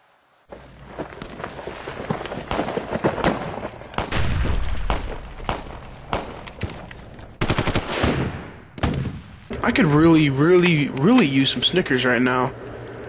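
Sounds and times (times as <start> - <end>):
single gunshots: 4.0 - 6.4, 7.4 - 9.5.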